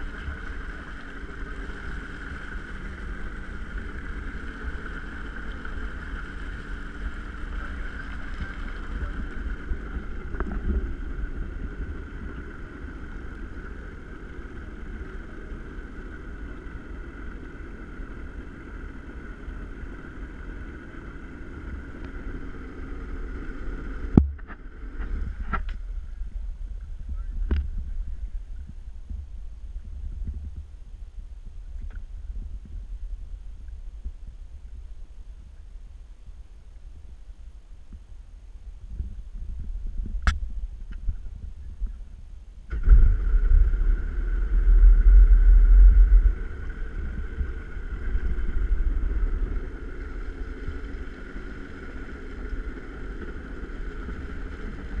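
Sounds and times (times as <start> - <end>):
boat motor idling: 0.0 - 28.5, 42.7 - 55.0.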